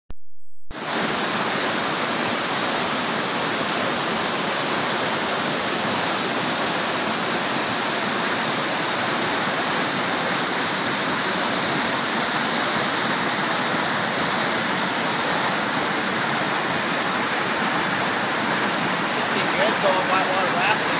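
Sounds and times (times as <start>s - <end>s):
water rushing over dam spillway: 0.8s - 20.9s.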